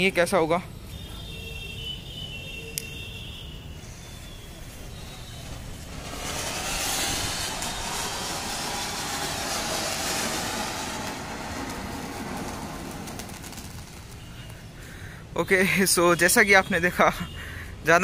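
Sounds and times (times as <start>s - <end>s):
firework fountain hissing: 3.8s - 15.3s.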